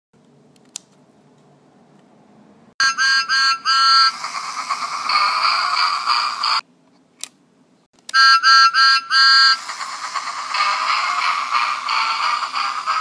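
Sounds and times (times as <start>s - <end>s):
toy train whistle tooting: 2.8s - 6.6s, 8.1s - 13.0s
hissing steam sound: 3.6s - 6.6s, 9.2s - 13.0s.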